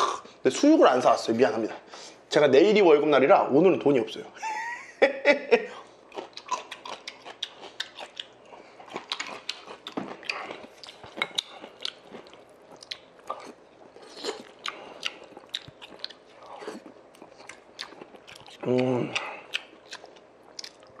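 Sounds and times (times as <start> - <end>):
chewing and crunching: 6.0 - 21.0
wet mouth sounds: 6.2 - 21.0.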